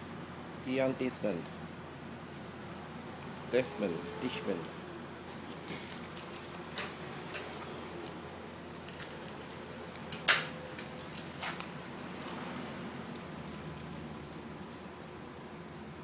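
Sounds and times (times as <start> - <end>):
foil wrapper crinkling and tearing: 5.3 - 6.7, 7.8 - 14.4.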